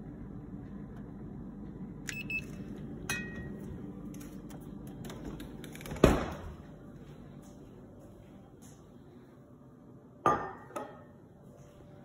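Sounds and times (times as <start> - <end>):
steady low hum: 0.0 - 12.0
thermometer beeps: 2.1 - 3.6.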